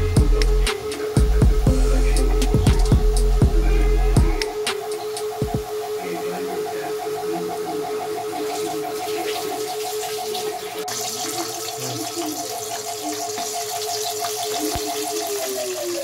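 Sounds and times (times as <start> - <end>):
quickly pulsing tone: 0.0 - 16.0
steady hum-like tone: 0.0 - 16.0
potatoes sizzling in hot oil: 9.8 - 16.0.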